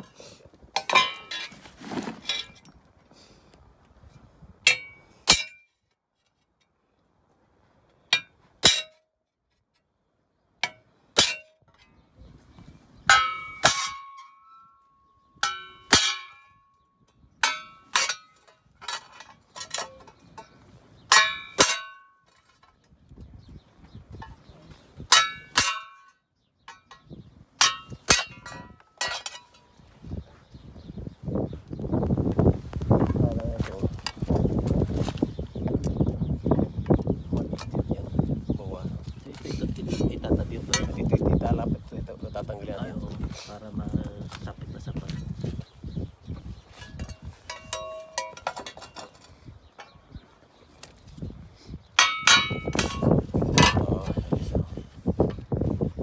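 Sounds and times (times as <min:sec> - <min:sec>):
metal sheet scuffing and rustling: 0:00.8 - 0:02.7.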